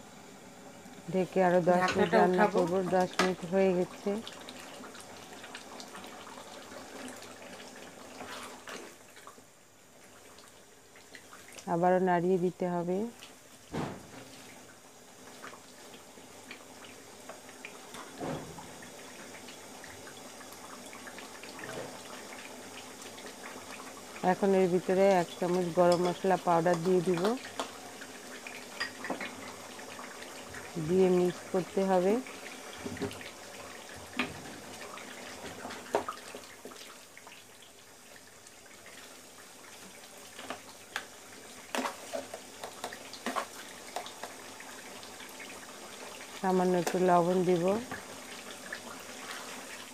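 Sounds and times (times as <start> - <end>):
pan simmering hiss: 0.0 - 49.9
gravy bubbling and popping: 39.4 - 49.2.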